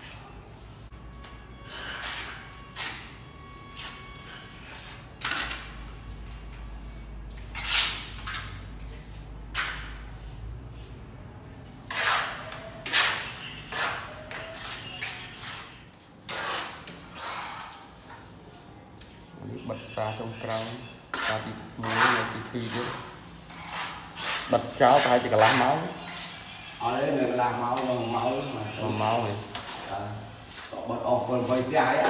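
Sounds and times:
trowel scraping cement: 1.6 - 6.5, 11.8 - 19.3, 20.2 - 26.3.

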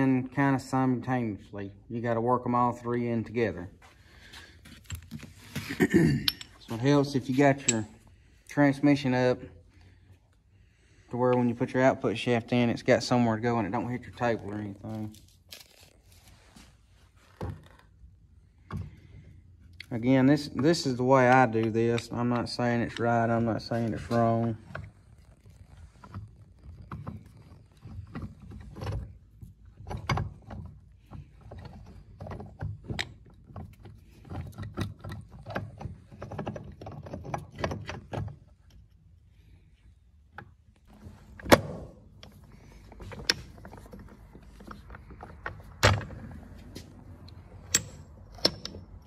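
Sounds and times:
metal gears clinking and scraping: 7.5 - 8.0.

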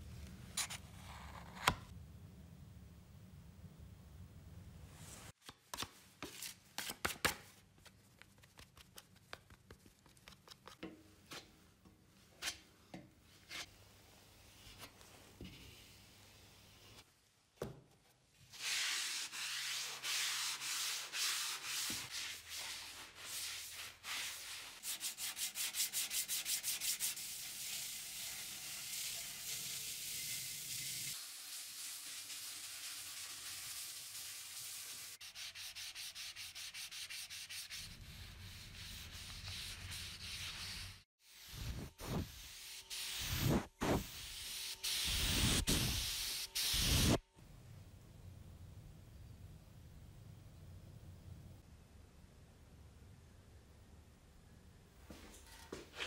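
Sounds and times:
hand-sanding metal: 18.6 - 47.2.

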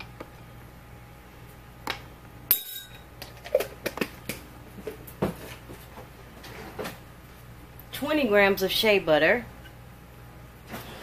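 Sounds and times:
glassware clinking: 2.5 - 3.0.

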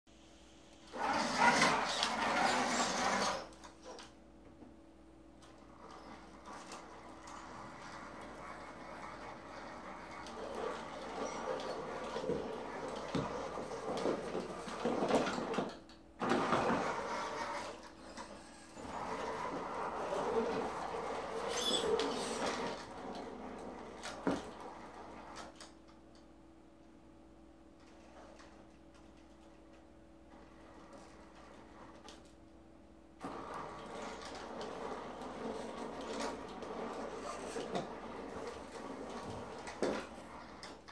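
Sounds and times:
tires scrubbing on floor: 1.0 - 3.5
toy car motor whirring: 1.0 - 3.6, 16.6 - 22.9.

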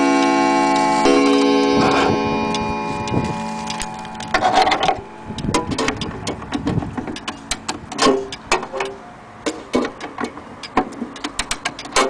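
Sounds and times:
clock gong ringing: 0.0 - 6.1.

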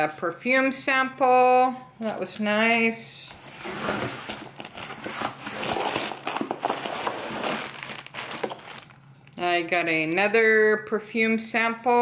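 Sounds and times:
packing material rustling: 3.4 - 9.0.

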